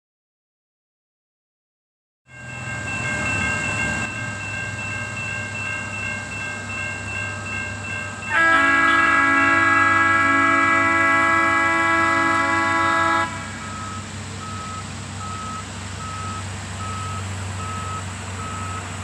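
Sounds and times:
crossing bell ringing: 0:02.3 - 0:19.0
multi-tone horn chord: 0:08.3 - 0:13.7.

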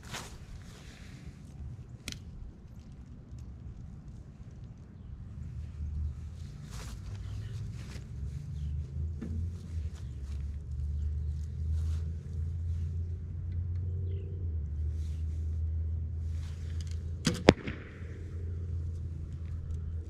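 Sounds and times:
bow string sharp cracks: 0:17.2 - 0:19.8.

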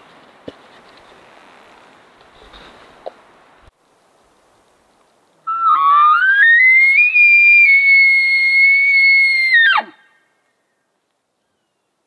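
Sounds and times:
elk bugle call whistle: 0:05.5 - 0:10.0.

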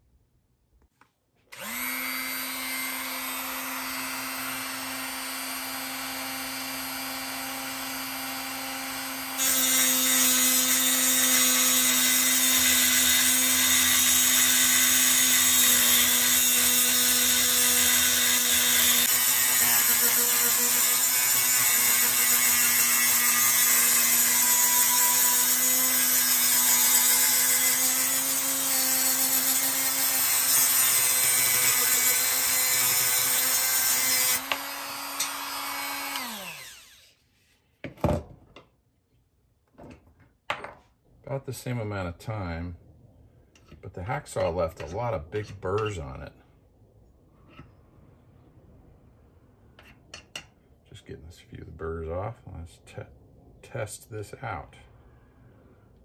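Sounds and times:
rotary tool motor whining: 0:01.5 - 0:08.5, 0:09.4 - 0:37.2
cutoff wheel grinding metal: 0:01.5 - 0:37.1.

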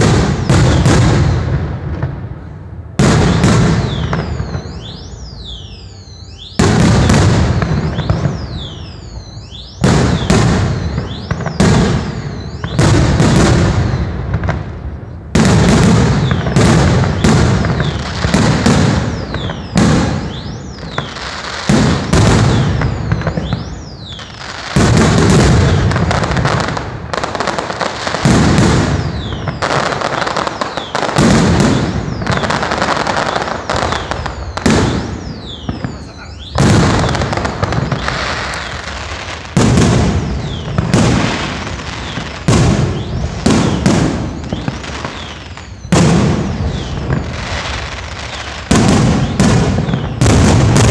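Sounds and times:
fireworks bangs: 0:00.0 - 0:50.9
fireworks crackling: 0:00.0 - 0:50.9.

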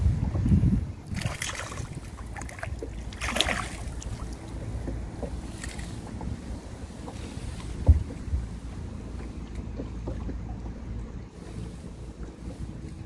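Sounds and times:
wind buffeting microphone: 0:00.0 - 0:13.0
fish splashing at surface: 0:01.1 - 0:04.4.

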